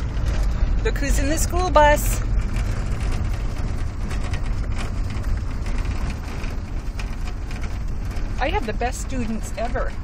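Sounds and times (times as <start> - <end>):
van engine and road rumble: 0.0 - 10.0.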